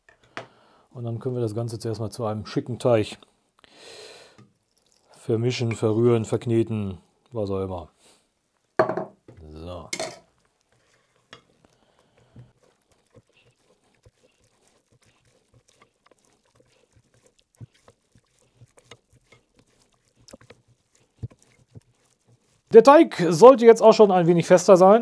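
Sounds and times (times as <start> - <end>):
spatula squelching in dough: 10.3 - 24.0.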